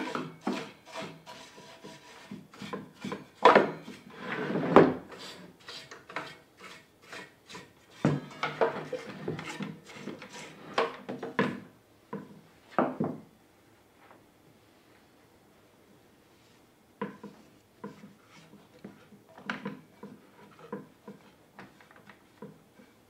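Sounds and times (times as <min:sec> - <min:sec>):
hard parts clacking and scraping: 0:07.9 - 0:11.6.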